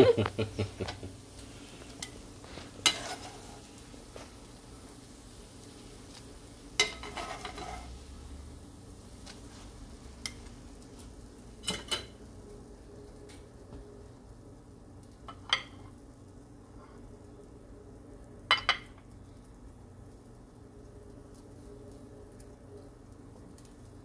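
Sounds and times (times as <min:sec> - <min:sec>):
faint sizzle from pan: 0:00.0 - 0:24.0
metal tongs clacking on pan: 0:06.8 - 0:07.9, 0:11.6 - 0:12.2.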